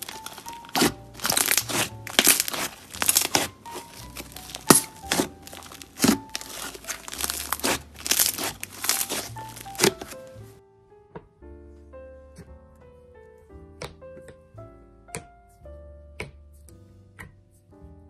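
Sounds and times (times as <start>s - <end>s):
slime squishing and popping: 0.0s - 10.3s.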